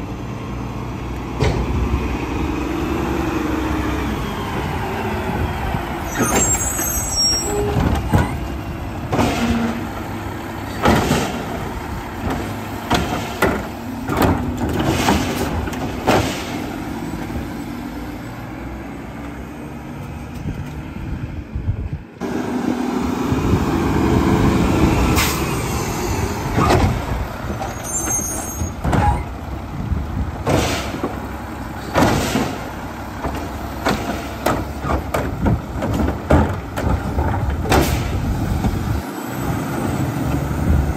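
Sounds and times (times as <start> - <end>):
diesel engine running: 0.0 - 40.9
short high squeals: 6.0 - 8.4, 27.6 - 29.3.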